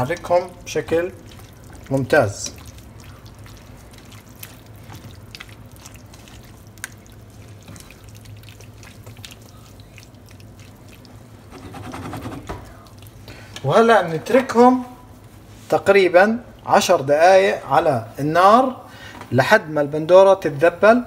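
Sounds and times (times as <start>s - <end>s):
vegetables squelching in pan: 0.0s - 13.6s.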